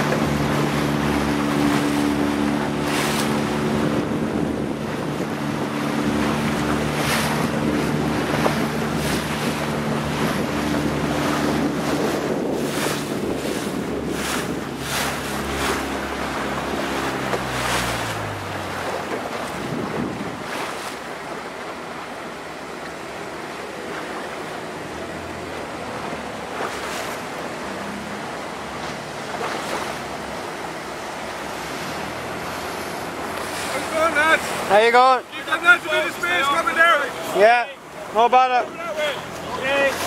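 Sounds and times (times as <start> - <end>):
wind buffeting microphone: 0.0 - 21.6
water: 0.0 - 40.0.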